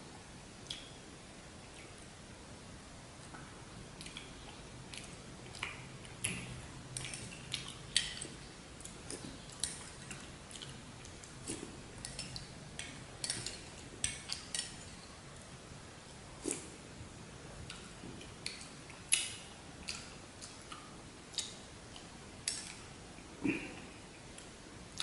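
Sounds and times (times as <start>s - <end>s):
wet mouth clicks and smacks: 0.6s - 1.0s, 3.3s - 15.0s, 17.7s - 22.9s.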